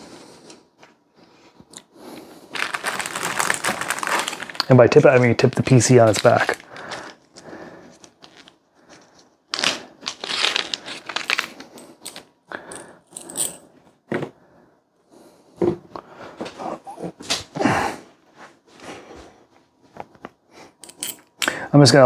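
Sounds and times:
plastic bags crinkling: 2.4 - 8.6, 9.5 - 12.3.

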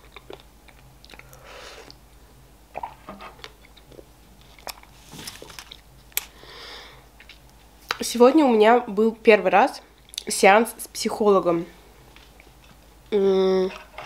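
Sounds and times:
person chewing: 0.0 - 2.0, 2.8 - 6.3.

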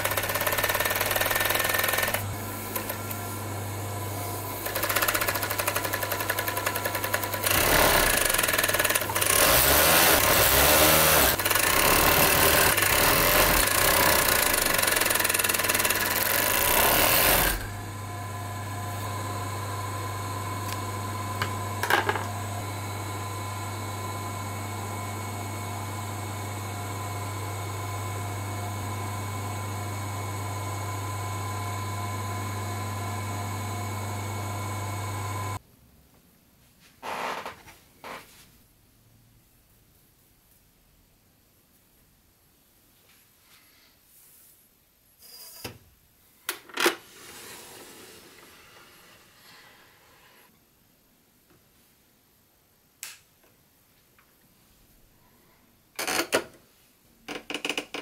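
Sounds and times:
overlock machine stitching: 0.0 - 3.2, 4.5 - 17.8.

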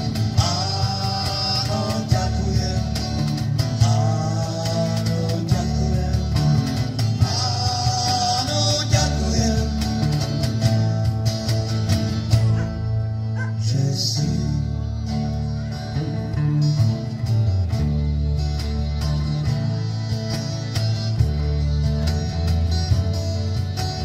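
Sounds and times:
steady percussion beat: 0.0 - 13.4
electric guitar: 0.0 - 24.0
strummed acoustic guitar: 0.0 - 24.0.

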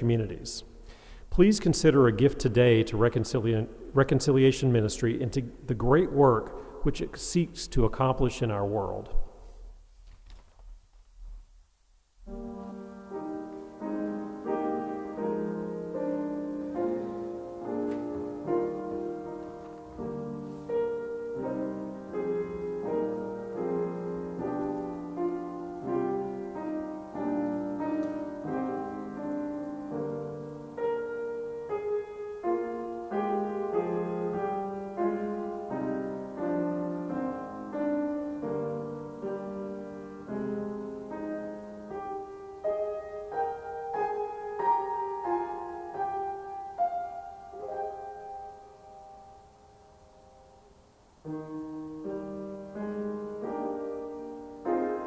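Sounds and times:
calm solo piano piece: 12.2 - 55.0.

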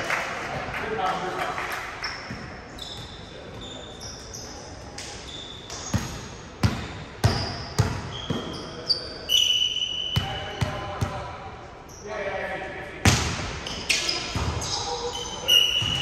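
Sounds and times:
sneakers squeaking on gym floor: 2.0 - 11.1, 13.1 - 16.0.

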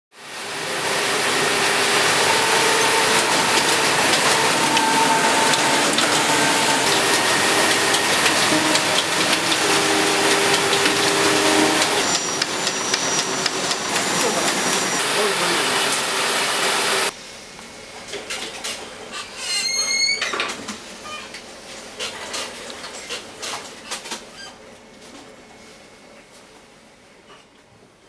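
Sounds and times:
machine whine: 0.2 - 17.1
knitting machines clattering: 1.2 - 15.4.

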